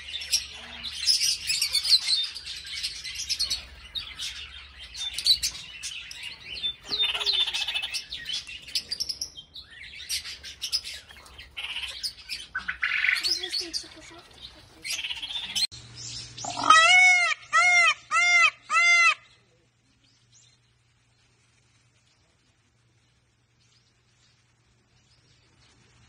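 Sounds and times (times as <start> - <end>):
parrots chirping and chattering: 0.0 - 19.4.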